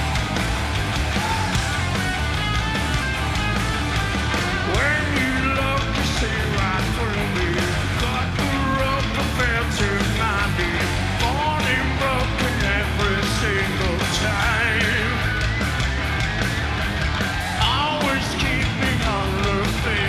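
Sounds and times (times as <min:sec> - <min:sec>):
electric guitar: 0:00.0 - 0:20.0
steady drum beat: 0:00.0 - 0:20.0
man singing: 0:04.5 - 0:15.4, 0:17.6 - 0:20.0.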